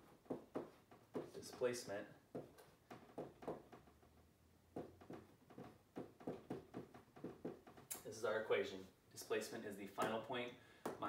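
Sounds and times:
marker writing on whiteboard: 0:00.0 - 0:07.9.

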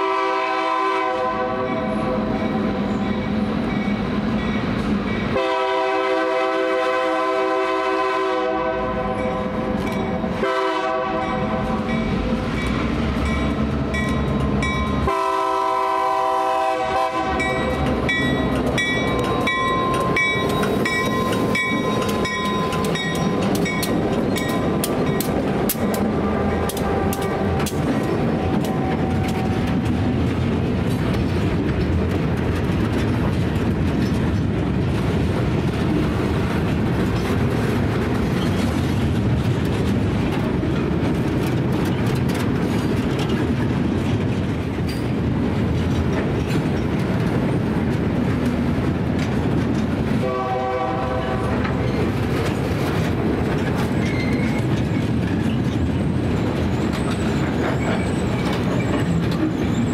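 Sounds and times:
train horn blast: 0:00.0 - 0:02.9, 0:05.3 - 0:09.7, 0:10.3 - 0:12.0, 0:15.0 - 0:17.8, 0:25.9 - 0:29.7, 0:50.2 - 0:51.9
freight train rumbling past: 0:00.0 - 0:59.9
wheels clicking over rail joints: 0:11.2 - 0:15.3, 0:17.1 - 0:50.2, 0:51.1 - 0:59.9.

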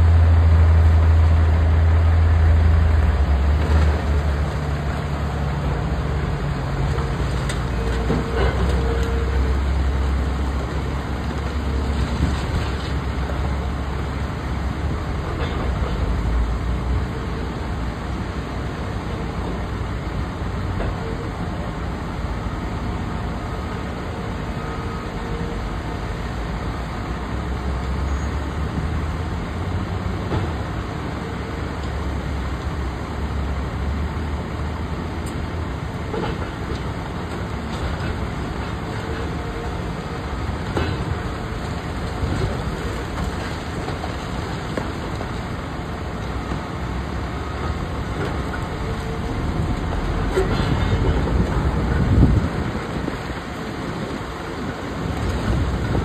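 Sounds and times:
excavator diesel engine rumbling: 0:00.0 - 0:56.0.

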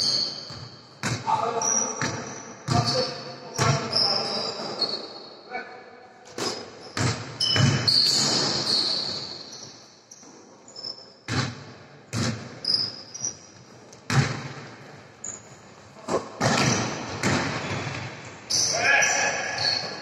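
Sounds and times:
sneakers squeaking on floor: 0:00.0 - 0:05.4, 0:06.3 - 0:20.0
basketball bouncing on hard court: 0:00.5 - 0:01.2, 0:02.0 - 0:03.0, 0:06.4 - 0:08.5, 0:11.3 - 0:12.8, 0:14.0 - 0:15.4, 0:16.1 - 0:18.3.

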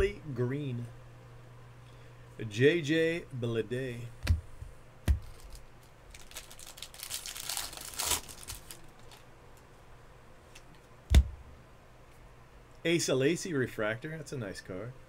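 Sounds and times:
trading cards rustling: 0:05.1 - 0:09.7
soft thumps: 0:11.1 - 0:11.5.

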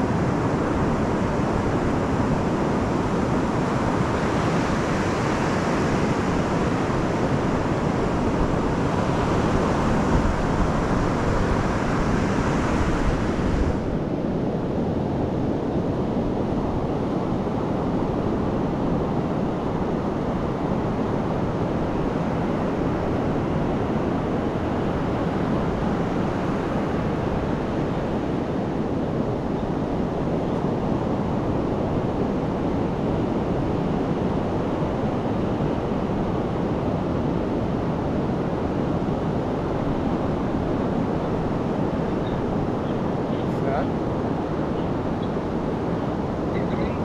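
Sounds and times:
waves breaking on beach: 0:00.0 - 0:15.2
wind rumble on microphone: 0:00.0 - 0:47.0.

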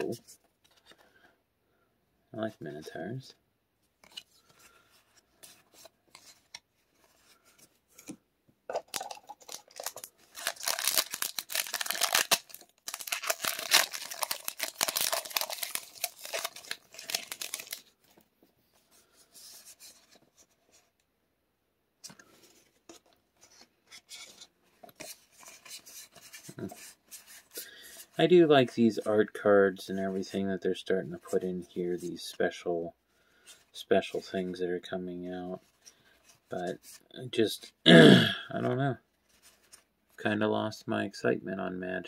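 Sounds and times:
wrapper and cards rustling: 0:04.0 - 0:20.9, 0:38.6 - 0:39.9
foil wrapper crinkling and tearing: 0:08.9 - 0:17.9.

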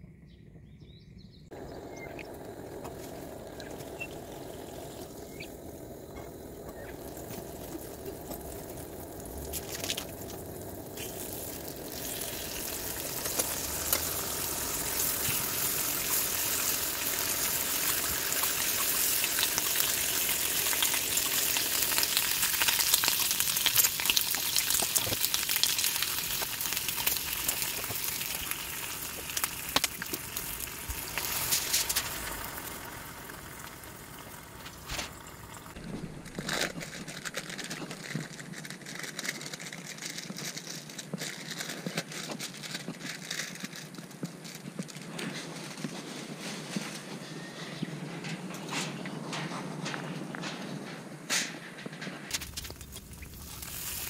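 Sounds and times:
ham sizzling in a skillet: 0:02.3 - 0:36.8, 0:52.3 - 0:54.0.

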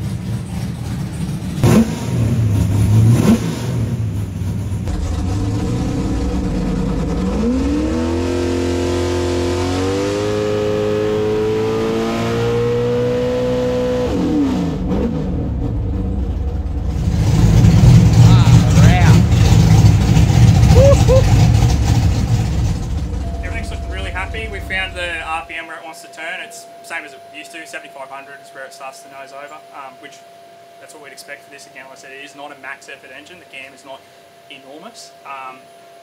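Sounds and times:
car engine idling: 0:00.0 - 0:11.8, 0:14.2 - 0:25.6
engine revving on a dyno: 0:01.6 - 0:25.4.

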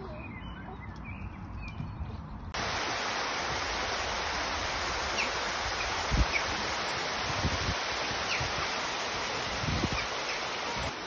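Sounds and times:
low wind rumble: 0:01.3 - 0:11.0
waterfall rushing over rocks: 0:02.6 - 0:11.0.

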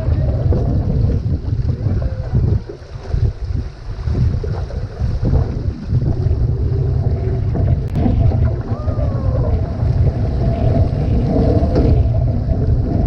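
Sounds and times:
water splashing along hull: 0:00.0 - 0:13.0
wind buffeting microphone: 0:00.0 - 0:13.0.

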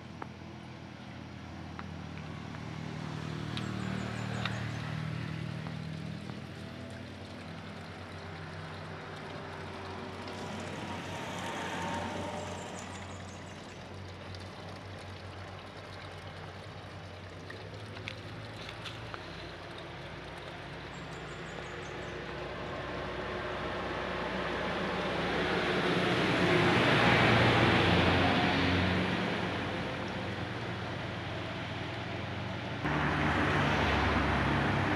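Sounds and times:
road traffic engines: 0:00.0 - 0:34.9
vehicle passing close: 0:01.4 - 0:13.8, 0:22.0 - 0:34.9.

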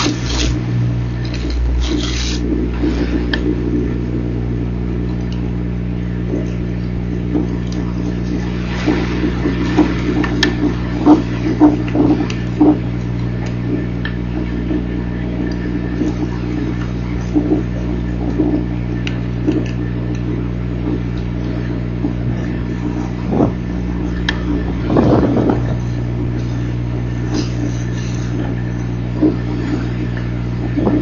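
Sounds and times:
low electrical hum: 0:00.0 - 0:31.0.

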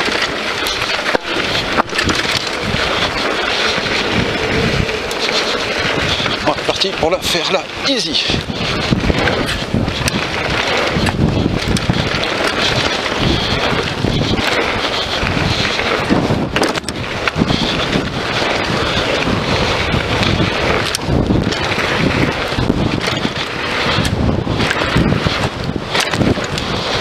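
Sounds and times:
bike clicks and knocks: 0:00.0 - 0:27.0
tyres rolling on gravel: 0:00.0 - 0:27.0
wind rushing over microphone: 0:00.0 - 0:27.0.

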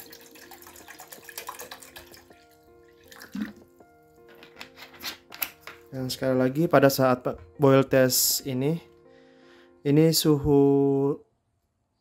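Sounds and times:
water sloshing in a pot: 0:00.0 - 0:03.7
soft background music: 0:00.0 - 0:12.0.

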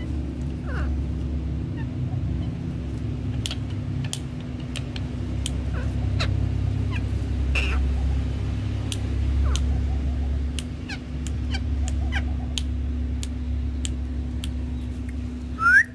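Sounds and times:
parakeets chirping: 0:00.0 - 0:01.1, 0:05.6 - 0:08.6
steady low hum: 0:00.0 - 0:15.9
parakeet squawk: 0:00.6 - 0:01.0, 0:05.7 - 0:08.0.

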